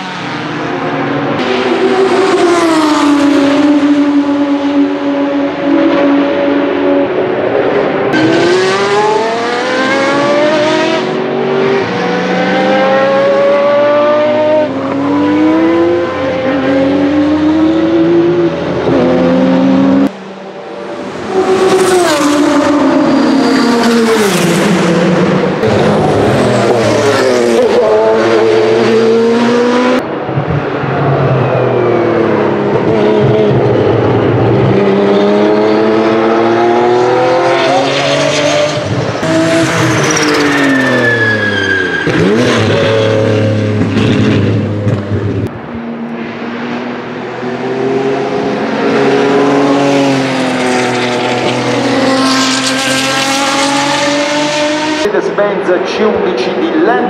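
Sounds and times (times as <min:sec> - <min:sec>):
racing engine accelerating: 0:00.0 - 0:57.0
race car passing by: 0:46.2 - 0:57.0.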